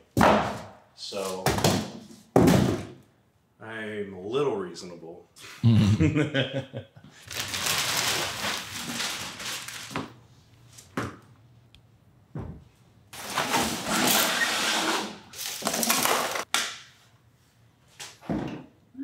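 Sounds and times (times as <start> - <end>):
cardboard knocks and bumps: 1.4 - 2.9
cardboard scraping rustle: 7.3 - 10.0.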